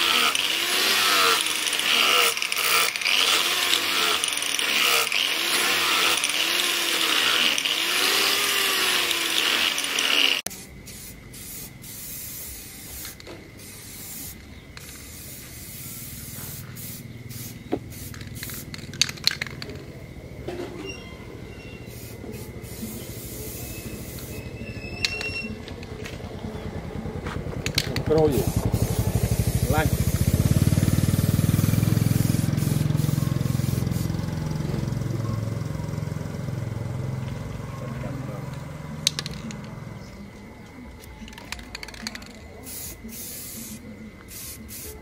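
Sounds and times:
angle grinder grinding steel: 0.0s - 10.5s
aerosol spray can hissing: 0.0s - 19.0s, 21.8s - 24.4s, 28.3s - 34.4s, 42.6s - 45.0s.

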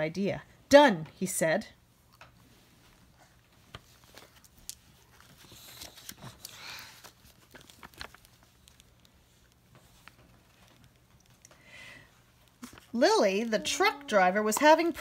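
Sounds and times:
paper page rustling: 3.6s - 11.4s, 12.5s - 13.6s.

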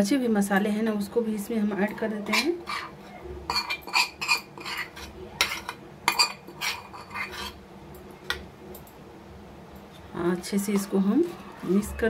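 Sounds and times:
metal spoon scraping steel bowl: 2.2s - 7.6s.

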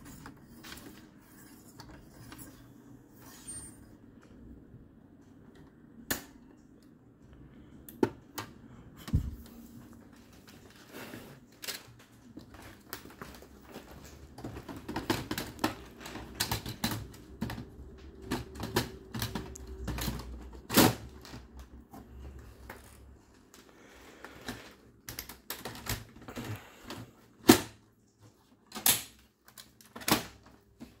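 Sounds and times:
plastic printer parts clicking: 14.3s - 21.8s, 28.7s - 30.6s.

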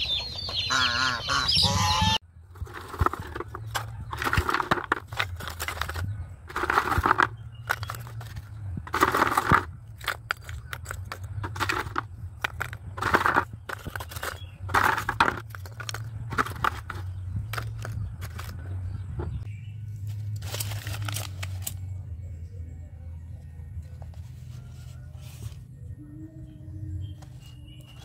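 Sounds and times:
charcoal lumps clattering: 2.5s - 18.8s.

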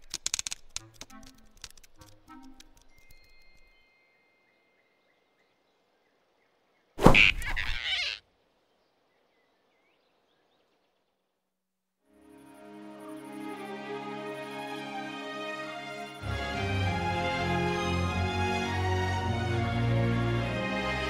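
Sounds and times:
whoosh and thud sound effect: 7.0s - 7.4s.

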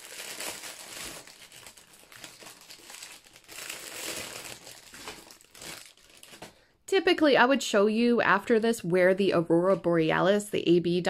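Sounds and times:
plastic packaging crinkling: 0.0s - 6.6s.

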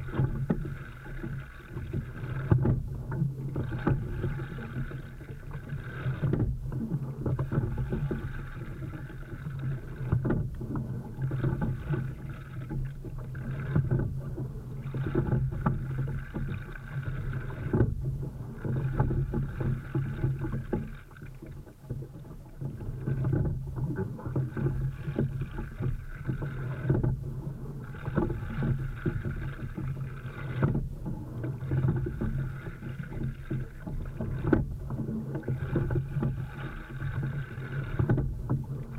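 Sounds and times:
water rushing along a hull: 0.0s - 38.9s
oar knocks: 33.2s - 36.3s, 38.0s - 38.8s.

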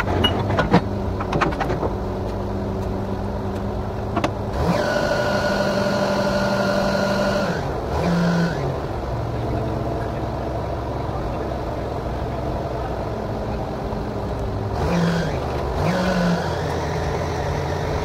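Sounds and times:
drilling rig engine revving: 4.5s - 12.9s, 14.5s - 18.0s.

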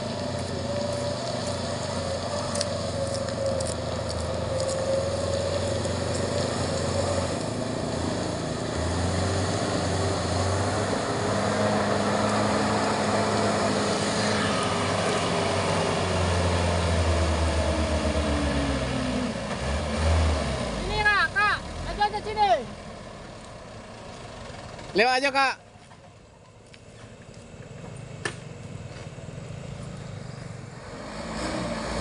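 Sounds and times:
diesel truck engine running: 0.0s - 25.0s.

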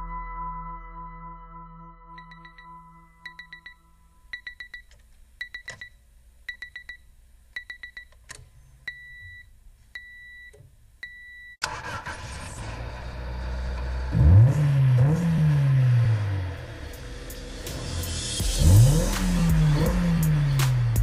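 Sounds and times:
electronic alarm beeping: 2.2s - 7.0s, 8.9s - 11.6s
car engine revving loudly: 12.1s - 21.0s.

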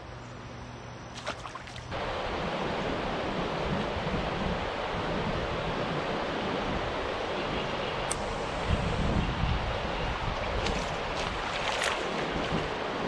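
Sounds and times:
river water rushing over rocks: 9.8s - 13.0s.

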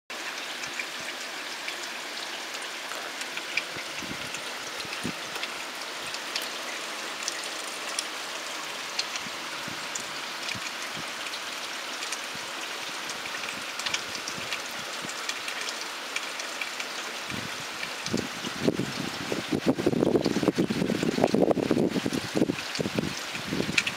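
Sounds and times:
rain falling on trees: 0.1s - 23.9s
wind buffeting microphone: 3.7s - 5.4s, 9.2s - 11.2s, 17.3s - 23.9s.

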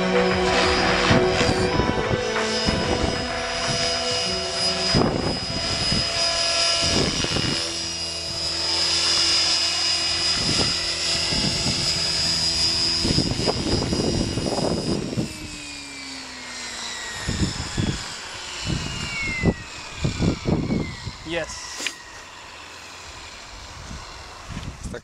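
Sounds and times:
rotors humming: 0.0s - 24.8s
rc helicopter motor whine: 0.0s - 25.0s.

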